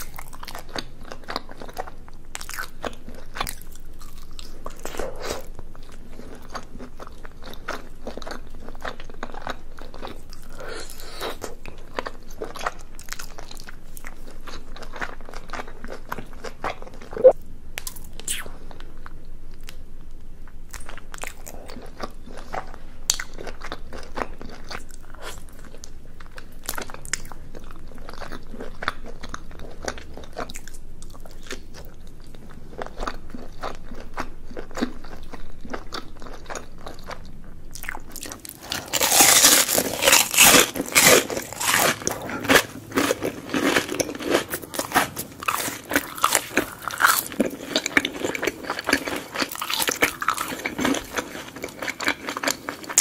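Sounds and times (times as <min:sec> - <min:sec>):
wet chewing of rice cakes: 0:00.0 - 0:17.4, 0:20.7 - 0:53.0
crisp crunching bites: 0:37.8 - 0:53.0.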